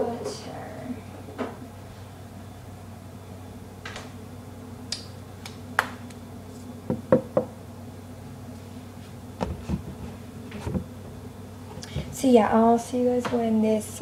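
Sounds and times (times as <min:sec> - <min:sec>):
steady low hum: 0:00.0 - 0:14.0
objects knocking on a counter: 0:06.9 - 0:07.5.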